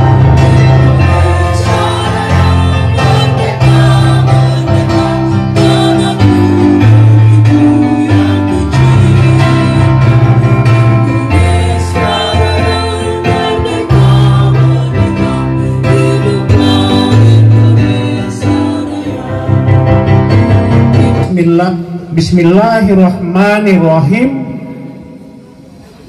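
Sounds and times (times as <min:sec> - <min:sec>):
person singing: 0:00.0 - 0:19.6, 0:20.3 - 0:21.3
held keyboard chords: 0:00.0 - 0:22.1.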